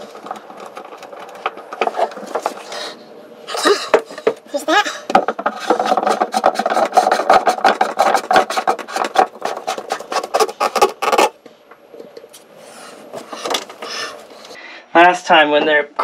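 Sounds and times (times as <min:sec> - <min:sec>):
plastic housing scraping on wood: 0:00.0 - 0:02.7, 0:05.1 - 0:11.3.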